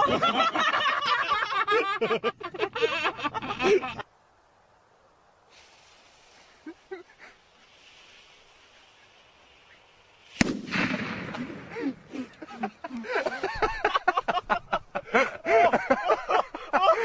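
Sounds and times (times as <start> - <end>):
faint hiss of smoking charge: 2.6 - 17.0
firework bang: 10.2 - 12.1.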